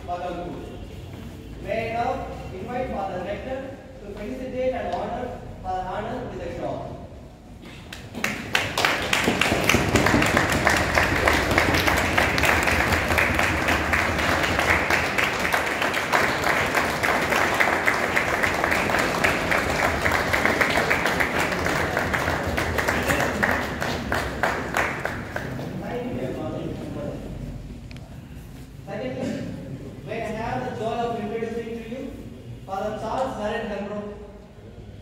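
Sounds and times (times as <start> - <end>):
crowd applauding: 7.9 - 25.9.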